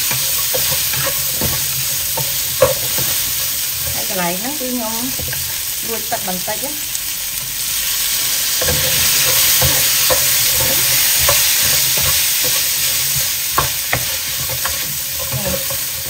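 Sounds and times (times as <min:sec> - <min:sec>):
spatula clacking and scraping pan: 0:00.0 - 0:05.8, 0:07.4 - 0:16.0
chicken sizzling in hot oil: 0:00.0 - 0:16.0.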